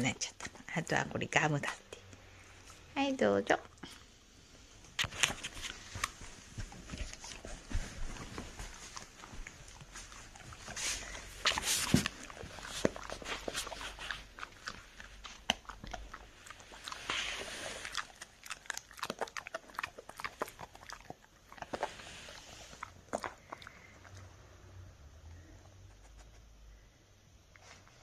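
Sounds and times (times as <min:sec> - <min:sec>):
dog chewing with crunches: 0:05.0 - 0:24.4.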